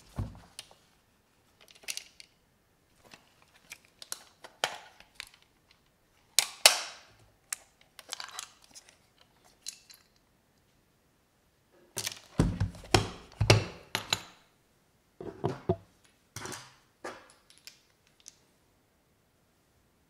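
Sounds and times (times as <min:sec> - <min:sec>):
sharp plastic snaps: 0:06.3 - 0:08.5.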